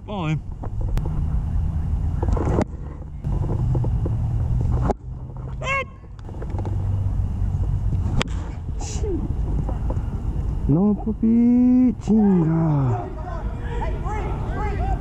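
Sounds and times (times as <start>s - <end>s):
wind rumble on microphone: 0.0s - 11.2s.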